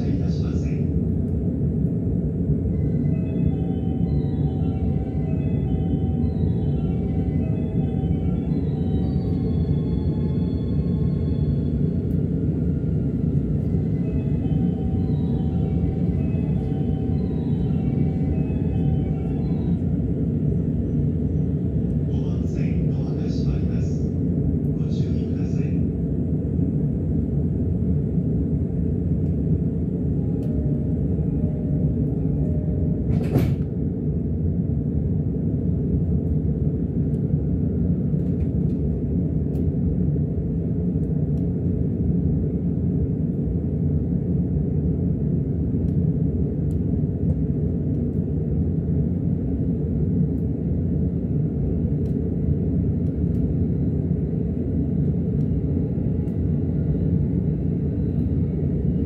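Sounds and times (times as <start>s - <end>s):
train carriage rumble: 0.0s - 59.0s.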